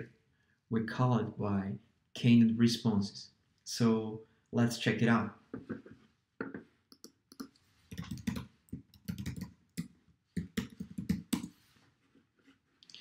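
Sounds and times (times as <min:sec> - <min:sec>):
typing on computer keyboard: 0:06.9 - 0:11.5.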